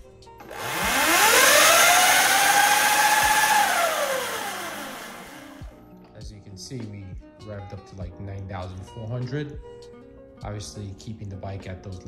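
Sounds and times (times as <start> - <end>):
electric motor whine: 0.4 - 5.7.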